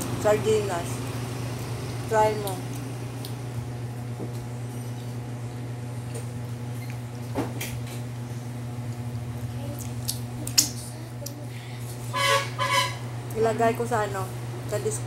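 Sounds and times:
steady low hum: 0.0s - 15.0s
chewing food: 9.6s - 11.4s.

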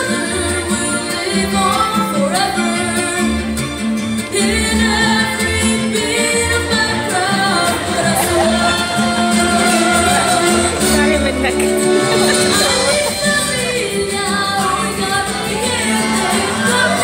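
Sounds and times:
person singing: 4.3s - 17.0s
repeating bass line: 7.8s - 13.7s.

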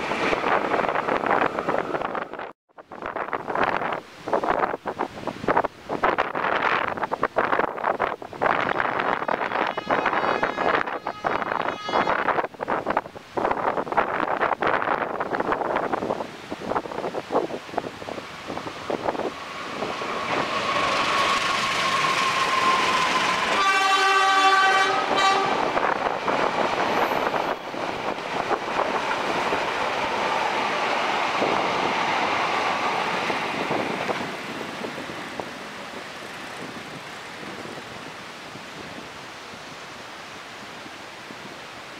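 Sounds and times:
train passing on rails: 0.0s - 41.9s
train horn: 9.1s - 12.4s, 21.8s - 25.7s.

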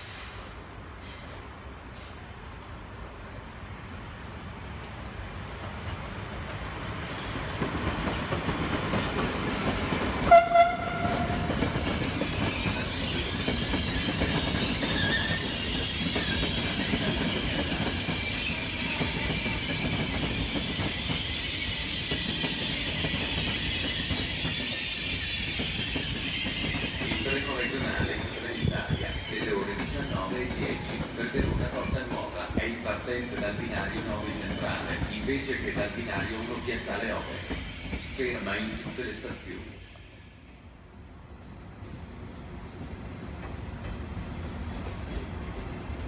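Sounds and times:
train rumbling past: 0.0s - 46.0s
train horn blast: 10.2s - 11.5s
high wheel squeal: 12.2s - 30.7s, 37.1s - 38.8s.

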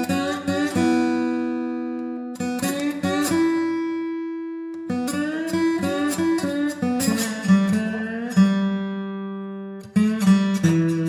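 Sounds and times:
picked acoustic guitar music: 0.0s - 11.0s.

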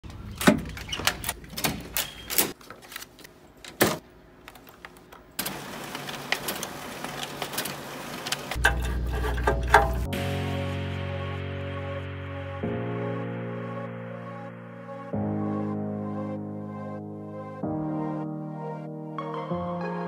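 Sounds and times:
sharp metal clicks and knocks: 8.5s - 10.1s
low steady hum: 8.6s - 10.1s
music: 8.6s - 20.0s.

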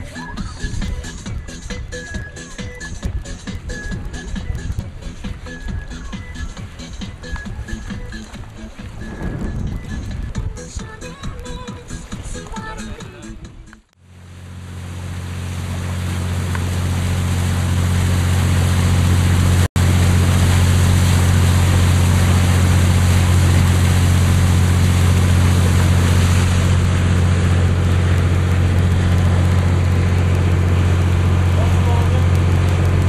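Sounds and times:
wind noise on microphone: 0.0s - 12.7s
boat engine droning: 0.0s - 33.0s
water rushing along hull: 0.0s - 33.0s.

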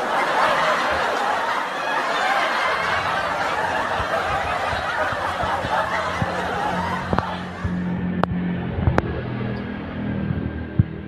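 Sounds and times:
people laughing and snickering: 0.0s - 8.1s.

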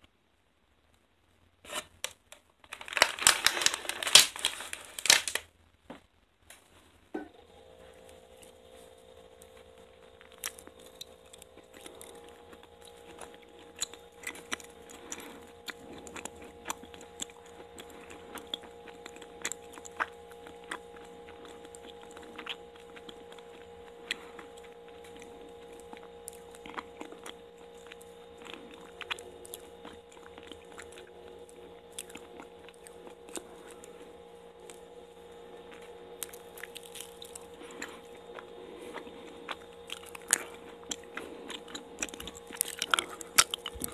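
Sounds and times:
faint steady hum: 0.0s - 43.9s
chewing with wet mouth clicks: 10.2s - 33.8s, 35.6s - 43.9s.

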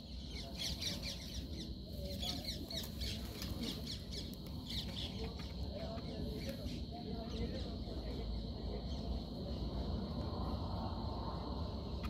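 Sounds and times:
birds chirping rapidly: 0.0s - 10.0s
low steady rumble: 4.3s - 12.0s.

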